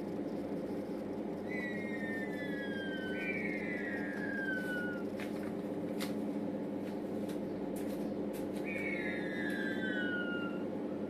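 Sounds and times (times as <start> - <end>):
low mechanical hum: 0.0 - 11.0
rhea chicks whistling: 1.4 - 5.2, 8.6 - 11.0.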